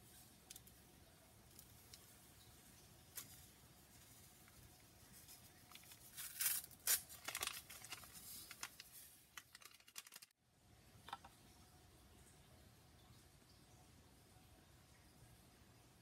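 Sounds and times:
packet crinkling and rustling: 3.1 - 10.4.

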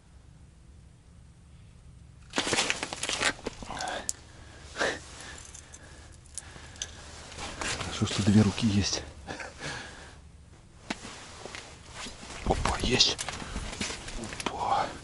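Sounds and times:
clothing rustling and crinkling: 2.2 - 8.8, 10.5 - 14.5.

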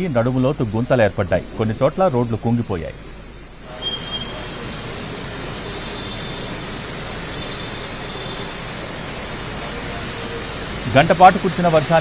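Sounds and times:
heavy rain hissing: 0.0 - 12.0
traffic on wet road: 3.8 - 12.0.

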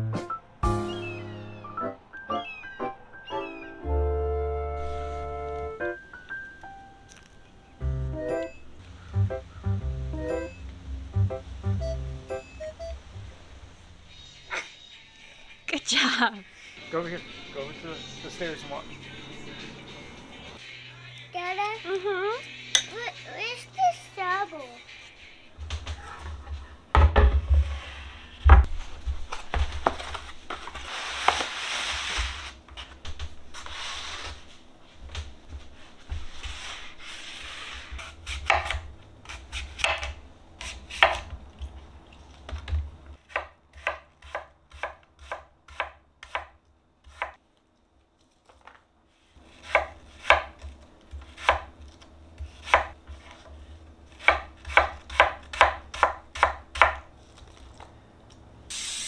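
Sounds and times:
knife cutting apple: 36.5 - 41.4, 49.4 - 57.8.

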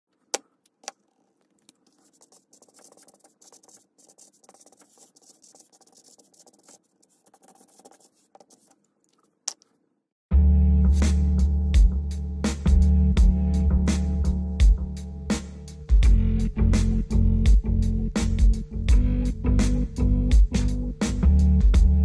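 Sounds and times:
marker scratching on paper: 1.9 - 8.8.

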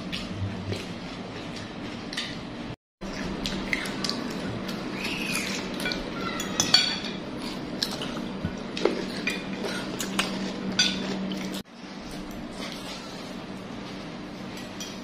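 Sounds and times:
cutlery clinking on ceramic bowls: 5.5 - 8.2, 8.8 - 11.5.

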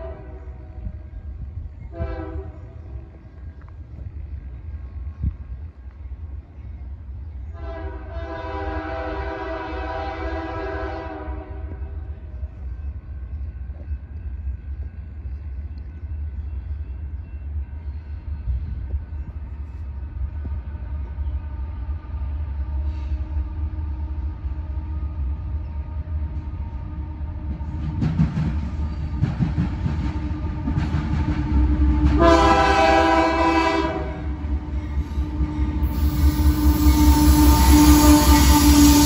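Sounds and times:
distant train air horn: 0.0 - 1.0, 1.9 - 3.1, 7.5 - 12.1, 31.7 - 39.0.

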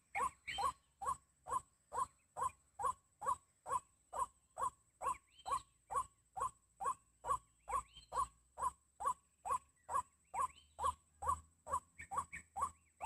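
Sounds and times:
bird calls with falling notes: 0.0 - 1.2, 4.2 - 6.1, 7.6 - 8.3, 9.0 - 13.0.

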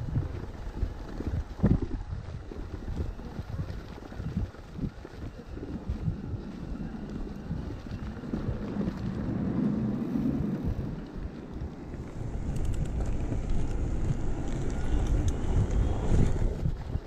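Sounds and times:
bike tyres rumbling on track: 0.0 - 17.0
wind buffeting microphone: 0.0 - 17.0
light clicks and rattles: 11.0 - 17.0.

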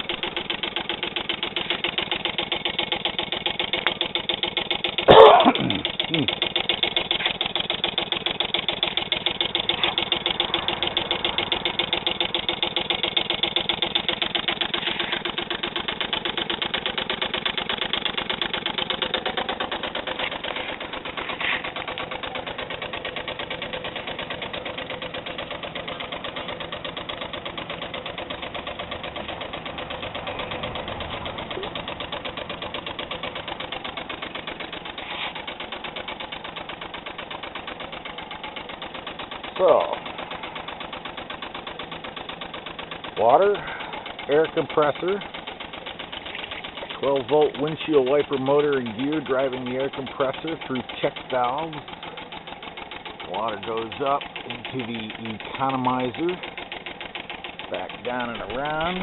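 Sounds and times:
small steam engine running: 0.0 - 59.0.

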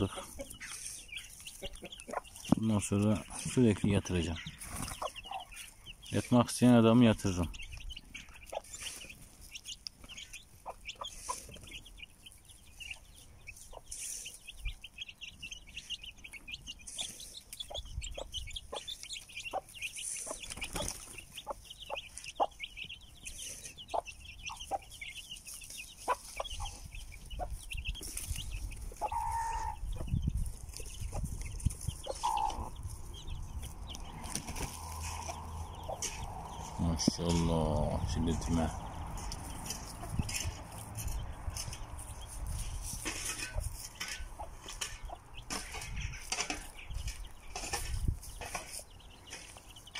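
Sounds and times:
chicken clucks: 0.0 - 49.9
chicks peeping: 0.0 - 49.9.

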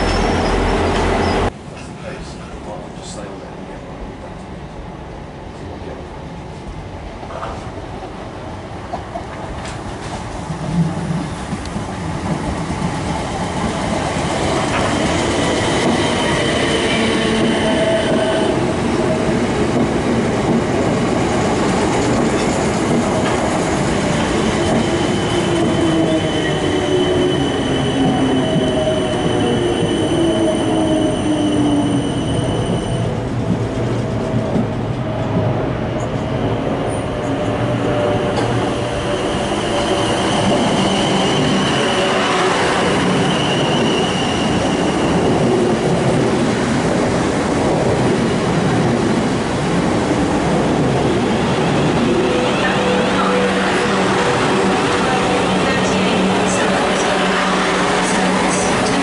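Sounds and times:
electric train whine: 47.7 - 59.0.

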